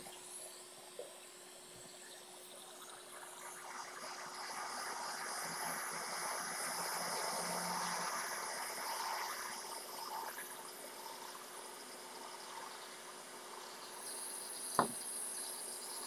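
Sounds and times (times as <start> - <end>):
hot air blower hissing: 14.0 - 15.2.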